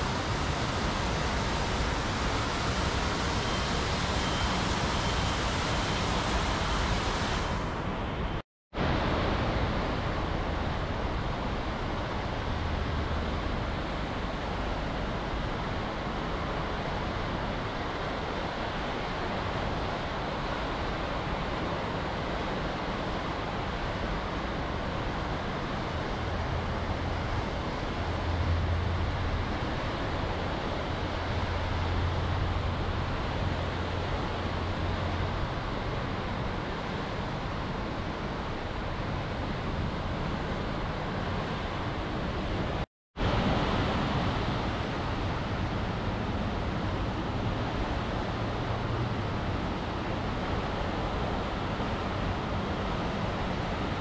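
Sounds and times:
heavy rain pouring: 0.0s - 7.8s.

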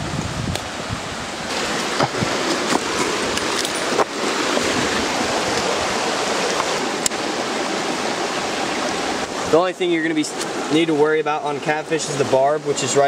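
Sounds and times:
water rushing over rocks: 0.0s - 13.0s
stones clacking underfoot: 1.8s - 4.2s.

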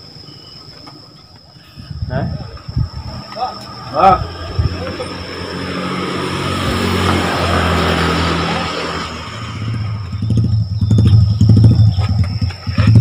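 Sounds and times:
vehicle engine running: 2.6s - 13.0s.

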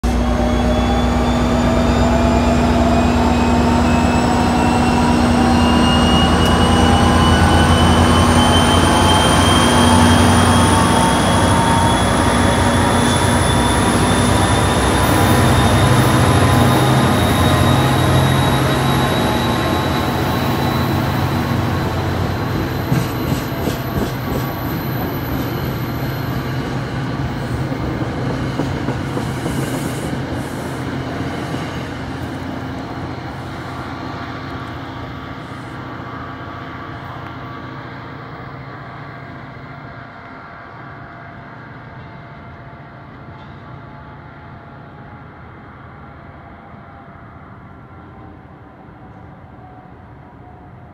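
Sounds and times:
diesel locomotive engine whine: 0.0s - 50.9s
train wheels clicking: 6.3s - 31.6s.

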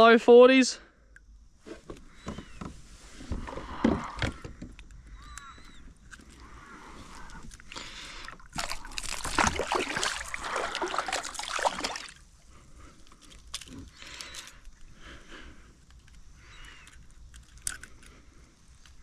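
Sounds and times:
water splashing and sloshing: 6.1s - 13.8s
water trickling: 7.5s - 12.2s.

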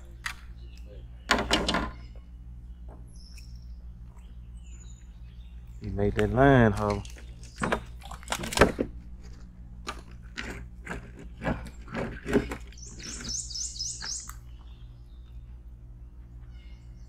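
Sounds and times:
bird chirping: 0.4s - 6.0s, 7.0s - 8.0s, 12.4s - 17.0s.

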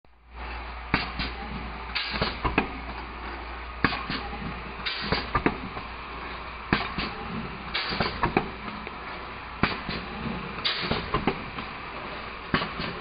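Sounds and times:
packaging machine hum: 0.2s - 13.0s
short pneumatic hiss: 0.9s - 2.5s, 3.8s - 5.4s, 6.7s - 8.3s, 9.6s - 11.3s
machine knocks and clicks: 0.9s - 3.1s, 3.8s - 5.9s, 6.7s - 8.8s, 9.6s - 11.8s, 12.5s - 13.0s.

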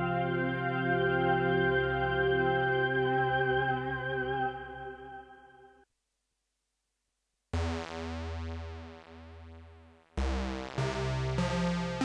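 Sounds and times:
synthesizer chords with deep bass: 7.6s - 12.0s.

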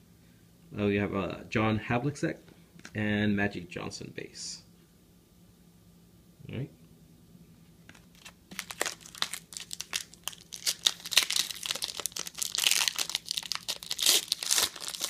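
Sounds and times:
foil wrapper crinkling and tearing: 7.9s - 15.0s.

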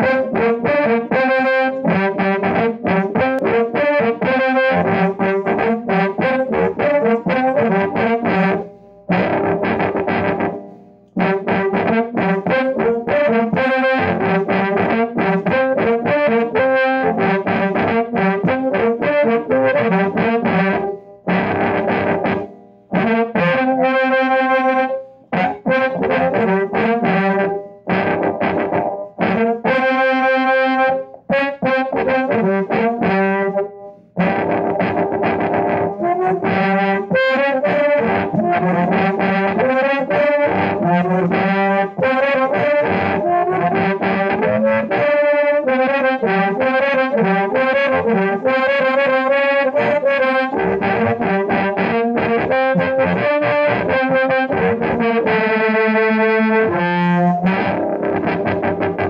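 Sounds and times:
amplified blues harmonica: 0.0s - 59.0s.

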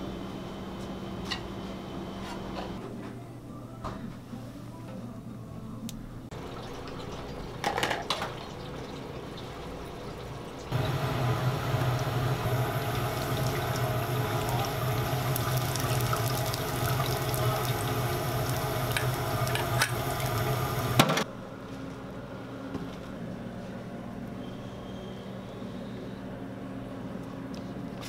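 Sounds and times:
food deep-frying in hot oil: 6.4s - 21.2s
low hum: 10.7s - 21.2s.

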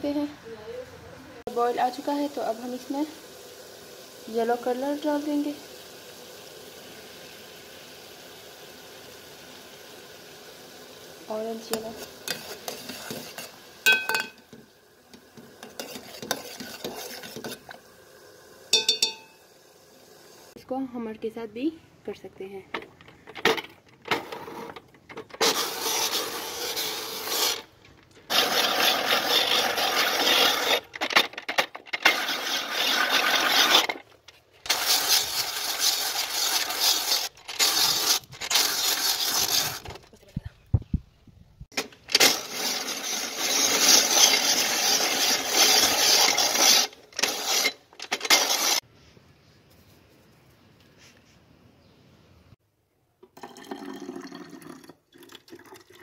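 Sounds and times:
ice shaving machine grating ice: 11.2s - 13.7s, 15.4s - 17.8s, 24.2s - 34.1s, 34.7s - 40.0s, 42.1s - 48.8s.

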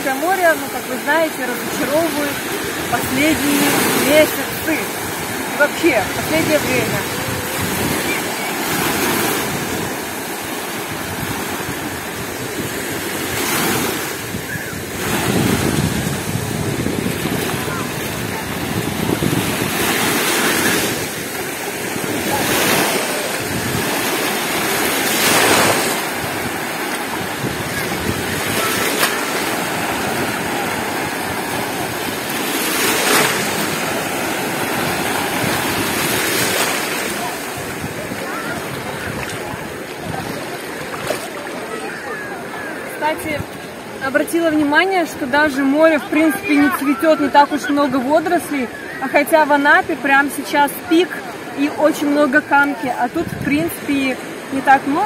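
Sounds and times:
wind buffeting microphone: 0.0s - 42.0s
surf breaking: 0.0s - 44.0s.

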